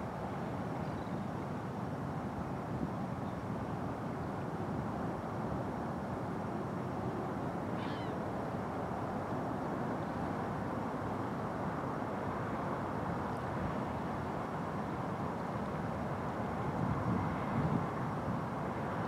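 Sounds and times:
wavering bird call: 0:07.8 - 0:08.2.

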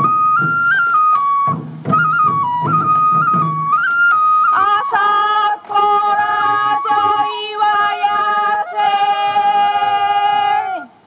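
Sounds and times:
person singing folk song: 0:04.5 - 0:11.0.

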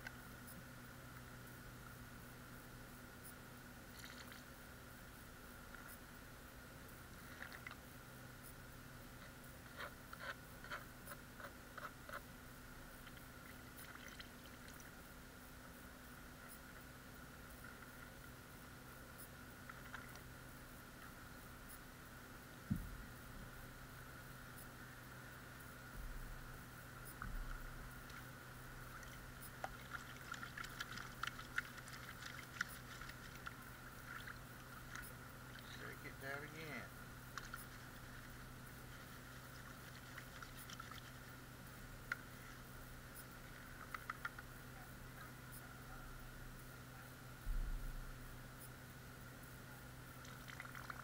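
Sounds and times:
faint steady hum: 0:00.0 - 0:51.0
small splashes and ticks: 0:03.8 - 0:04.6, 0:06.9 - 0:08.6, 0:12.9 - 0:15.1, 0:16.4 - 0:18.6, 0:19.2 - 0:21.2, 0:27.0 - 0:36.6, 0:37.2 - 0:42.5, 0:43.1 - 0:44.6, 0:50.1 - 0:51.0.

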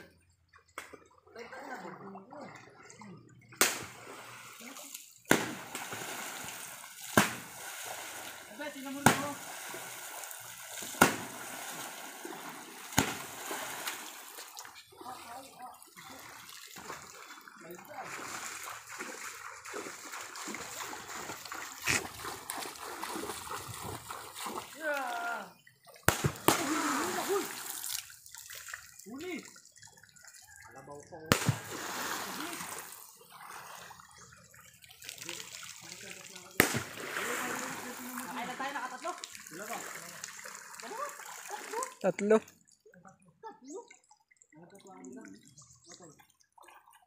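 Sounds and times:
water splashing from wading: 0:00.6 - 0:42.9
river water slapped hard: 0:03.6 - 0:04.1, 0:05.3 - 0:14.2, 0:26.0 - 0:27.6, 0:31.3 - 0:32.9, 0:36.6 - 0:37.9
loud sharp splash: 0:03.6 - 0:04.7, 0:05.3 - 0:14.4, 0:26.0 - 0:28.0, 0:31.3 - 0:33.0, 0:36.4 - 0:38.4.

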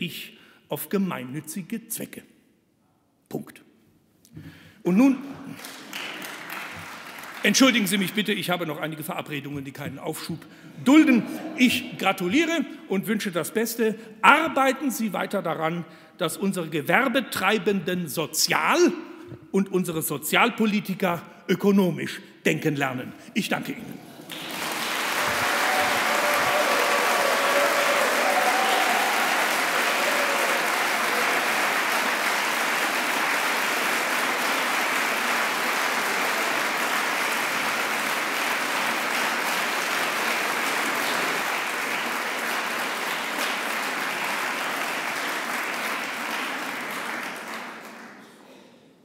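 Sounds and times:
audience applauding: 0:05.5 - 0:08.5, 0:24.2 - 0:48.2.

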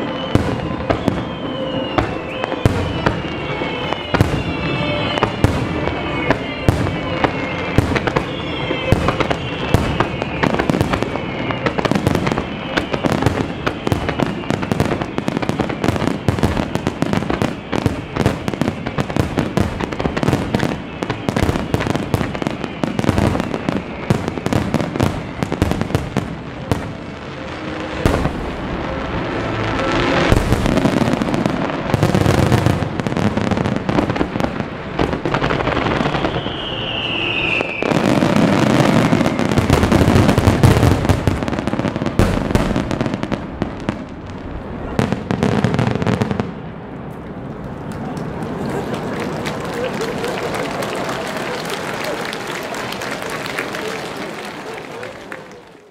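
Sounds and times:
fireworks whistles falling in pitch: 0:00.0 - 0:44.1
fireworks launches and bursts: 0:00.0 - 0:55.9.

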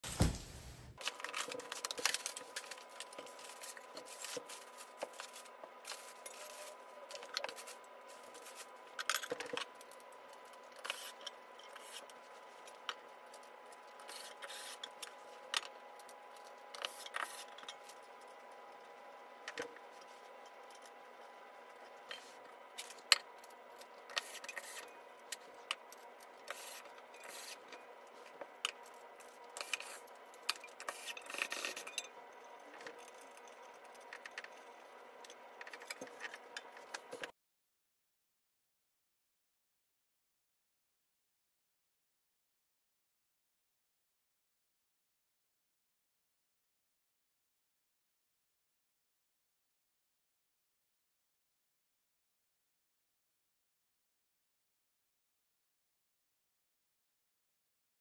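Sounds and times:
cardboard and packing rustling: 0:00.0 - 0:06.7.

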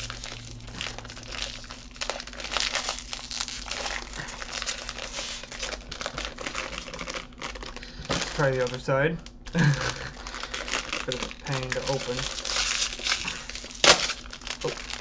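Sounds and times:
foil wrapper crinkling: 0:00.0 - 0:15.0.

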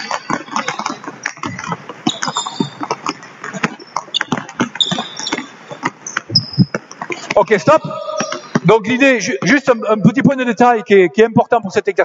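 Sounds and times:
sneaker squeaks: 0:00.0 - 0:08.8
basketballs bouncing on hardwood: 0:00.0 - 0:09.6.

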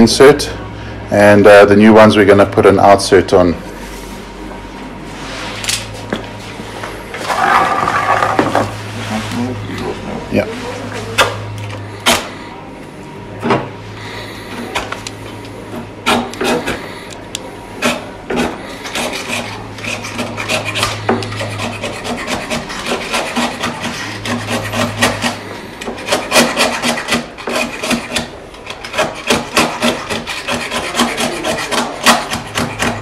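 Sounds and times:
blade scraping arrow shaft: 0:17.8 - 0:33.0.

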